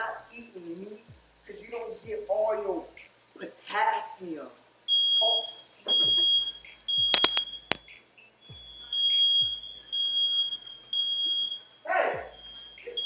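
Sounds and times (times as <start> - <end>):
sharp clicks: 7.2 - 7.4.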